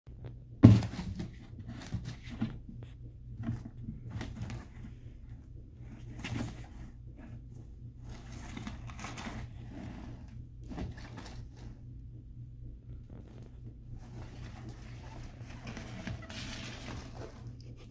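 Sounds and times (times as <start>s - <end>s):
low hum: 0.1s - 17.9s
cardboard box knocking on floor: 0.6s - 2.5s.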